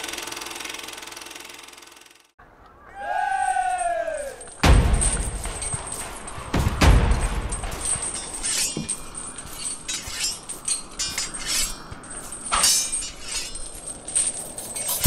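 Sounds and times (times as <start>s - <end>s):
light clinking and rattling: 3.7s - 15.0s.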